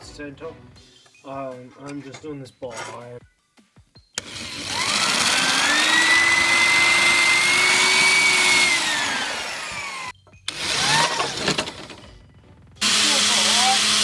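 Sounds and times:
electric drill boring through steel: 0:04.2 - 0:12.0, 0:12.8 - 0:14.0.

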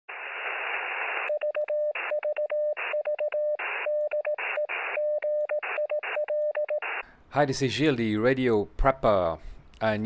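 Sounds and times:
radio static hiss: 0:00.1 - 0:03.0, 0:03.6 - 0:05.0, 0:06.8 - 0:07.1
morse code tone: 0:01.2 - 0:07.0.

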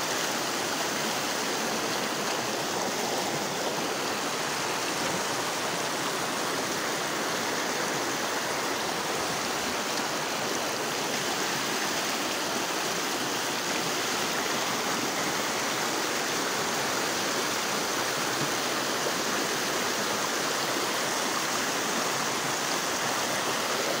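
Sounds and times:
floodwater rushing: 0:00.0 - 0:24.0.

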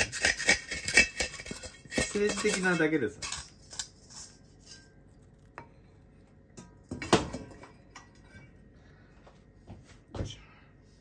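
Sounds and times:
spatula knocking and scraping wok: 0:00.0 - 0:04.9.

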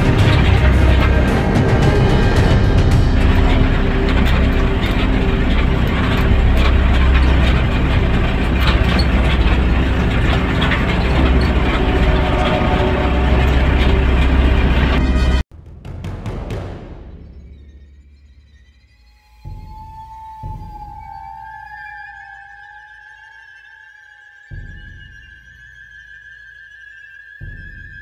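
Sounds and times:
rattles and knocks from bumps: 0:00.0 - 0:15.4
vehicle engine rumble: 0:00.0 - 0:18.5.

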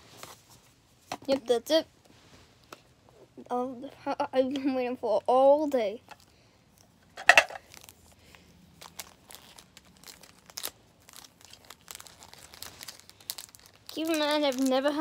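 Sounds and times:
plastic packaging crinkling: 0:07.2 - 0:15.0.

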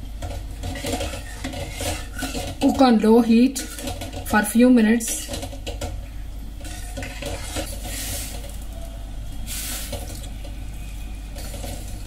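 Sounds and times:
ladle scraping steel pan: 0:00.6 - 0:02.8, 0:06.6 - 0:08.5.

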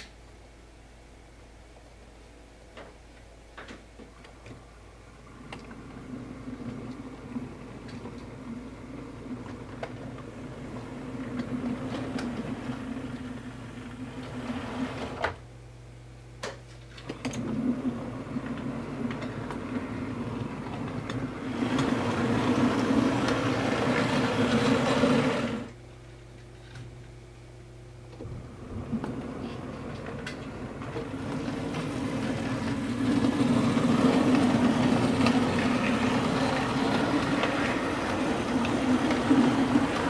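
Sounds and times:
wheel rumble and clicks: 0:05.5 - 0:15.2, 0:17.1 - 0:25.8, 0:28.6 - 0:40.0
model train motor hum: 0:17.4 - 0:25.8, 0:28.9 - 0:40.0.

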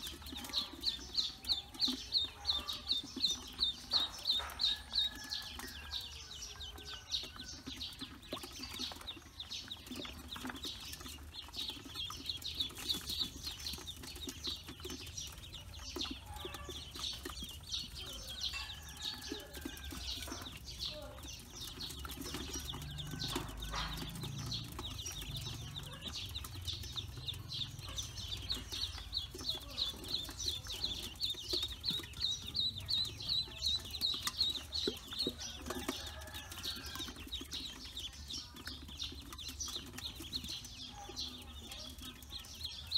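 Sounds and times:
ducklings peeping: 0:00.0 - 0:42.9.

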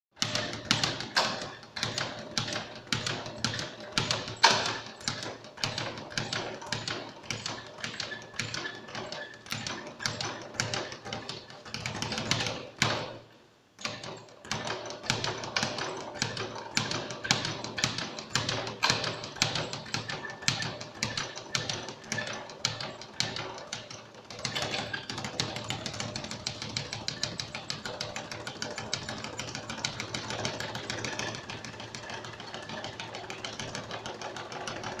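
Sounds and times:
speed bag rattling on board: 0:00.2 - 0:35.0.

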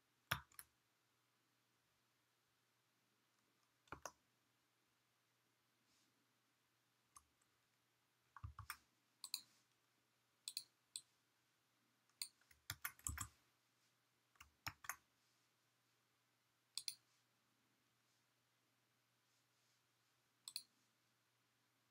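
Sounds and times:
mouse and keyboard clicks: 0:03.9 - 0:04.2, 0:08.4 - 0:09.5, 0:10.5 - 0:11.1, 0:12.1 - 0:13.3, 0:14.4 - 0:15.0, 0:16.8 - 0:17.0, 0:20.5 - 0:20.7.

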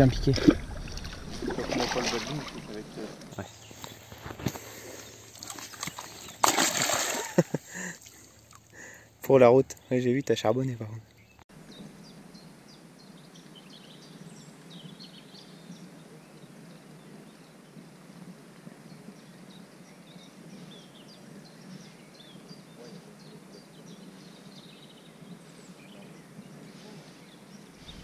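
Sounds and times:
faint outdoor background noise: 0:00.0 - 0:28.0
small birds chirping: 0:02.0 - 0:06.5, 0:18.7 - 0:28.0.

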